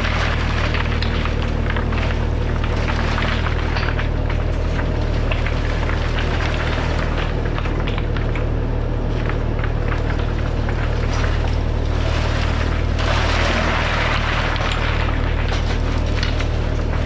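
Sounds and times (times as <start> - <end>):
stones dropping and clattering: 0.0 - 8.5, 9.1 - 17.0
loader engine running: 0.0 - 17.0.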